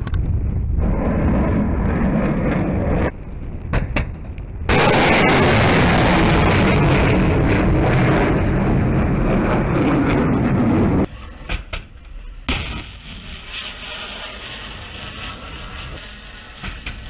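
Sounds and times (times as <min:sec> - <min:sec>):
rocket motors roaring: 0:00.0 - 0:17.0
missile launch rushing: 0:04.0 - 0:11.2.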